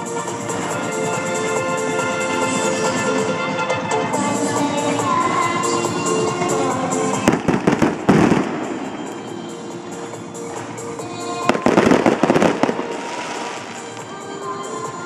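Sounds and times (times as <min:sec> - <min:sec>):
music playing: 0:00.0 - 0:15.0
fireworks bursting and crackling: 0:07.1 - 0:14.2.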